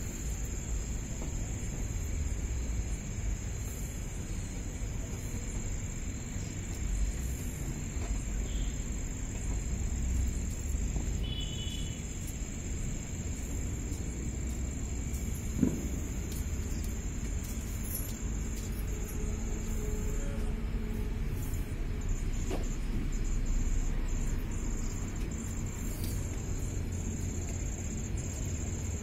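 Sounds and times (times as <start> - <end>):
crickets trilling: 0.0 - 29.0
brief thump: 15.5 - 16.1.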